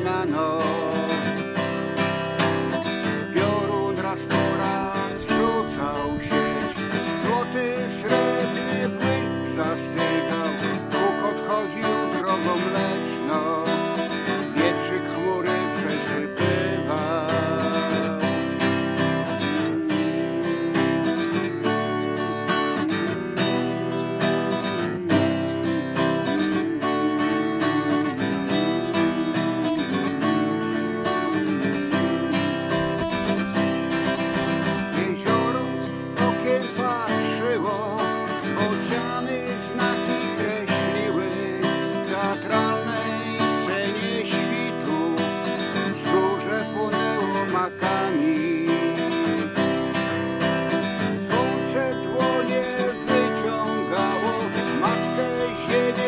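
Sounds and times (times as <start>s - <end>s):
acoustic guitar strumming: 0.0s - 56.0s.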